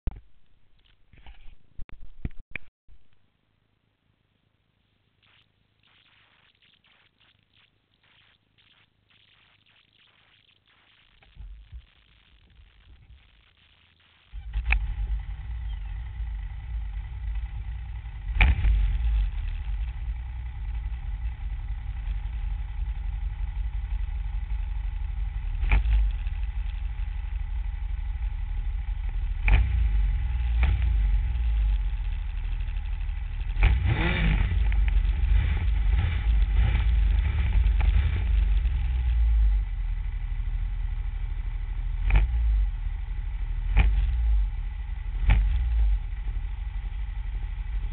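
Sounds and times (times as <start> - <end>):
snowmobile engine rumble: 14.3 - 47.9.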